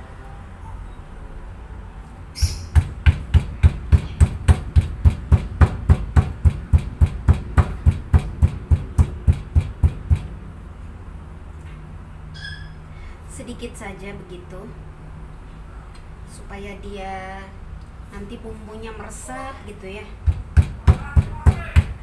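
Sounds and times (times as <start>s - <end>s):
mortar and pestle pounding: 2.7s - 10.4s, 20.2s - 22.0s.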